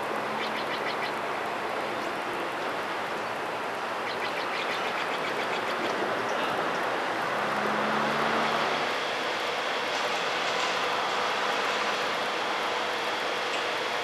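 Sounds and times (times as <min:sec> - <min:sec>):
bird chirping rapidly: 0:00.4 - 0:01.2, 0:04.0 - 0:05.8.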